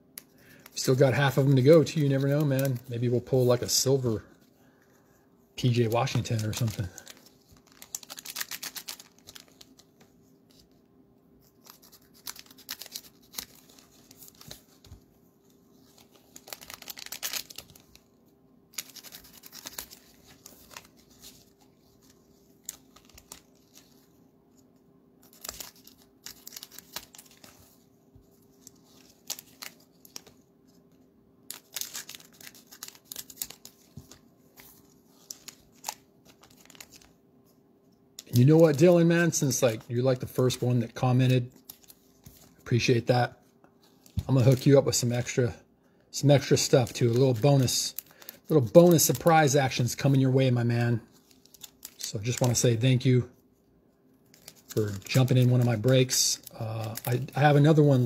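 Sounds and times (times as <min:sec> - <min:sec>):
faint steady hum: 0:00.0 - 0:58.0
cellophane wrappers tearing and crinkling: 0:05.6 - 0:09.9, 0:11.4 - 0:14.8, 0:15.9 - 0:18.1, 0:18.7 - 0:24.1, 0:25.2 - 0:27.8, 0:28.6 - 0:30.4, 0:31.5 - 0:37.2, 0:44.2 - 0:45.2, 0:46.4 - 0:50.4, 0:51.1 - 0:52.8, 0:54.2 - 0:58.0.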